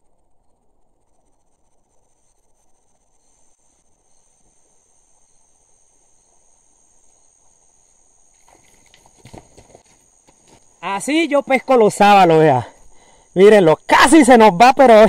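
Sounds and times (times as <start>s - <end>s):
high-pitched insect chorus: 0.0s - 15.0s
scuffs and knocks: 8.4s - 10.7s.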